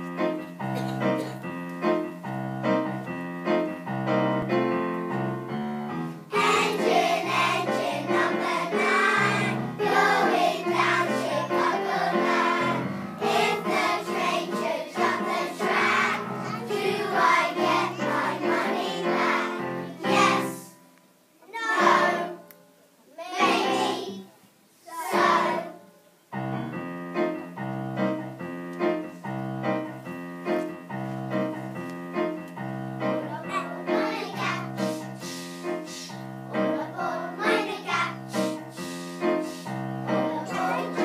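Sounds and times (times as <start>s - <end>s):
piano chords: 0.0s - 20.8s, 21.7s - 22.6s, 25.0s - 41.0s
children's choir singing: 6.3s - 20.8s, 21.5s - 22.5s, 23.3s - 24.3s, 24.9s - 25.9s, 33.5s - 41.0s.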